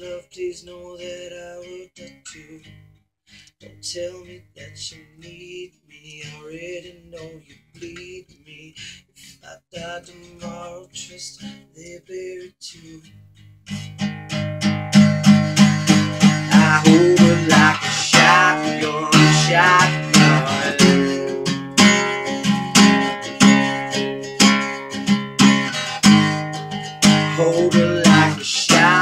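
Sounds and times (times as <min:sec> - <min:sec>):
man singing: 0:00.0 - 0:02.7, 0:03.6 - 0:13.2, 0:15.9 - 0:22.5, 0:27.0 - 0:29.0
acoustic guitar: 0:00.0 - 0:29.0.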